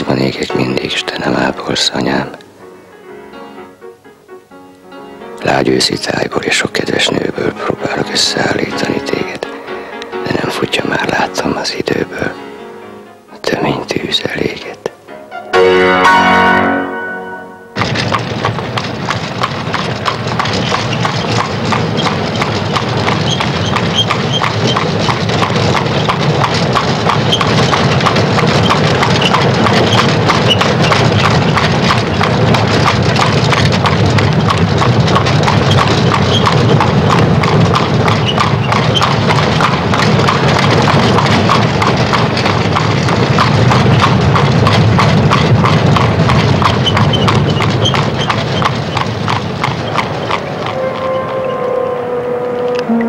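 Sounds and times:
cart wheels rattling: 5.4s - 9.5s, 10.2s - 12.3s, 17.8s - 53.0s
hooves clip-clopping: 17.8s - 51.9s.

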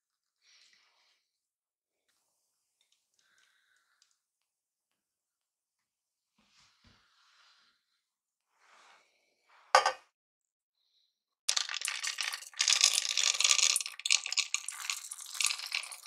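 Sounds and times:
chocolate chips rattling into saucepan: 11.5s - 16.0s.

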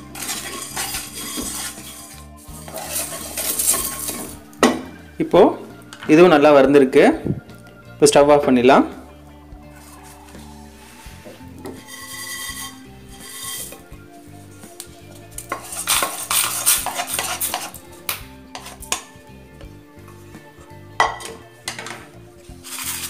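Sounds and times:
wooden spatula scraping spices in pan: 0.0s - 4.4s, 9.7s - 19.1s, 22.5s - 23.0s
pan knocking: 18.5s - 19.1s, 21.0s - 22.1s.

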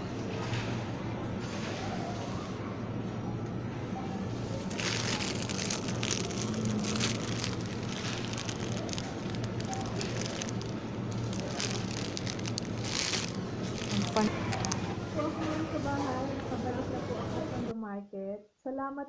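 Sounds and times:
steady low hum: 2.7s - 16.7s
plastic packaging crinkling: 4.6s - 14.9s.

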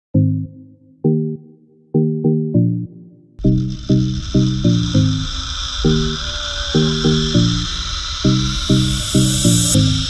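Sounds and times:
struck chords: 0.2s - 6.2s.

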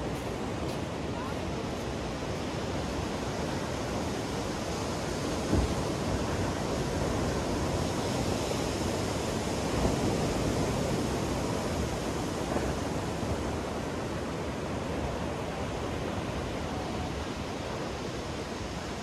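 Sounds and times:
ocean surf breaking: 0.0s - 19.0s.

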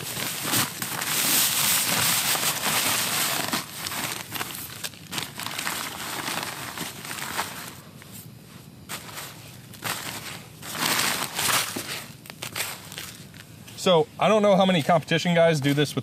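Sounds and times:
plastic bag crinkling: 0.0s - 8.0s, 8.9s - 13.6s
hands scraping and packing sand: 8.9s - 13.4s.

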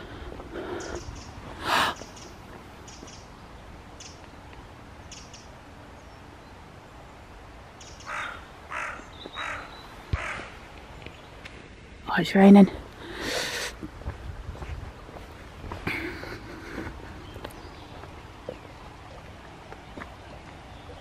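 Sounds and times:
crows cawing: 8.0s - 10.6s.

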